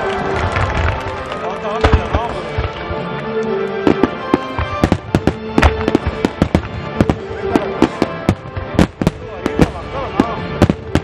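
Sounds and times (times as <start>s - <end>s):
music playing: 0.0s - 11.0s
firework shells bursting: 3.9s - 11.0s.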